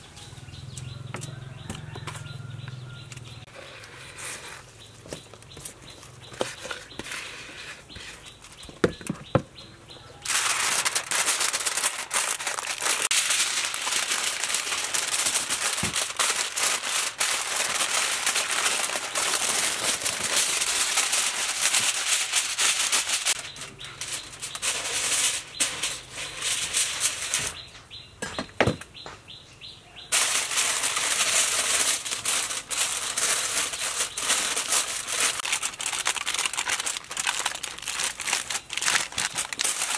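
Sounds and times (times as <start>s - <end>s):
aluminium foil crinkling: 10.2s - 27.6s, 30.1s - 39.9s.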